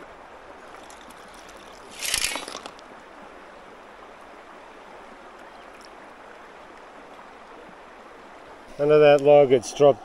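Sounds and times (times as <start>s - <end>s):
creek water running: 0.0s - 10.0s.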